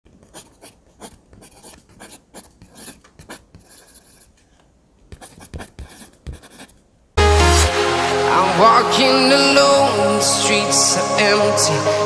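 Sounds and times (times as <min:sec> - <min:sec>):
pencil scratching on paper: 0:00.1 - 0:04.4, 0:05.1 - 0:06.8.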